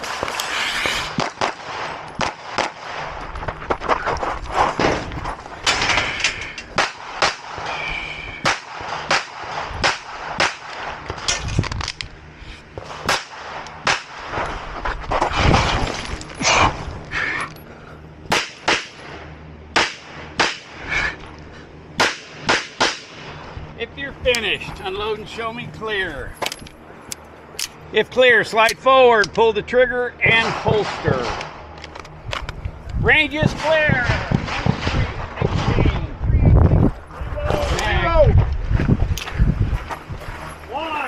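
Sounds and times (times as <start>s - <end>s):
pistol shots: 1.2s - 3.1s, 8.4s - 10.9s, 18.3s - 19.1s, 19.7s - 20.7s, 22.0s - 23.4s, 33.4s - 35.8s.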